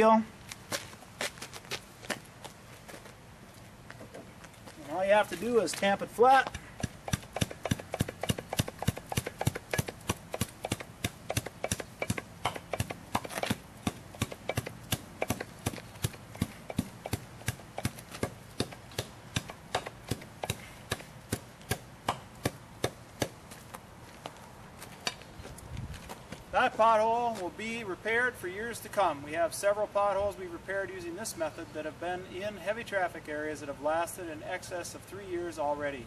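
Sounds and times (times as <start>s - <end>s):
tamper pounding asphalt: 3.9s - 27.5s.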